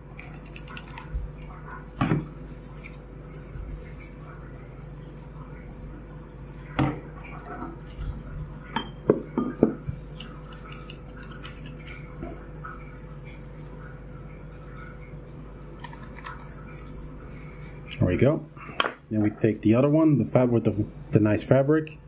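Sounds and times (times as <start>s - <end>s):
toothbrush scrubbing plastic: 0.0s - 8.6s, 9.8s - 17.4s.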